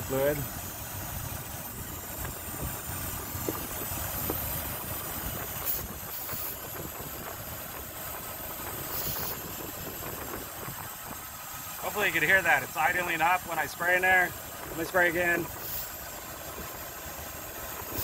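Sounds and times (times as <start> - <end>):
car engine idling: 0.0 - 18.0
aerosol spray hissing: 8.8 - 9.6, 15.5 - 16.1.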